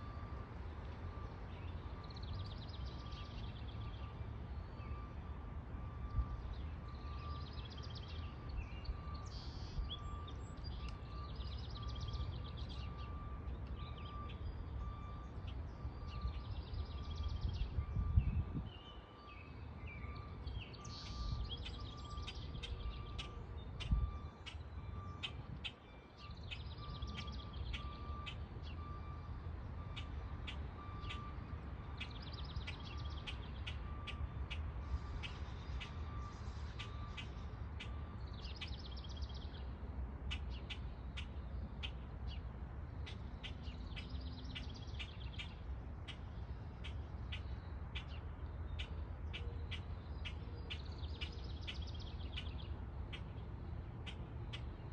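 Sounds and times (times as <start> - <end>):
songbirds singing and chirping: 0.0 - 54.9
low wind rumble on microphone: 16.2 - 19.0.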